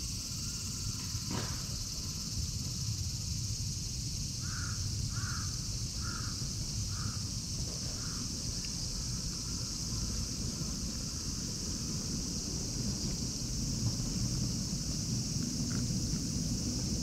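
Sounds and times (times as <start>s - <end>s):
crow cawing: 4.4s - 7.2s, 8.0s - 8.2s.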